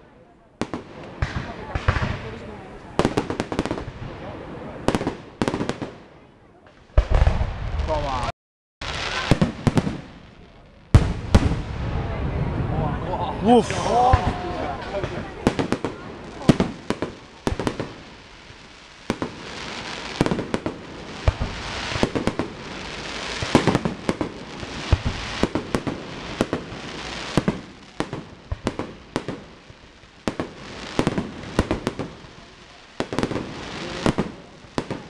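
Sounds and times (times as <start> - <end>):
fireworks bangs: 0.0 - 35.0
fireworks hiss: 6.9 - 12.1, 13.4 - 35.0.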